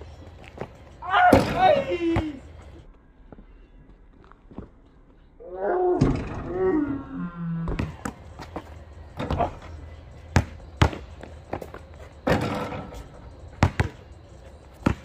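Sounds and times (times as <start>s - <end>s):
basketball bouncing on asphalt: 7.7s - 15.0s.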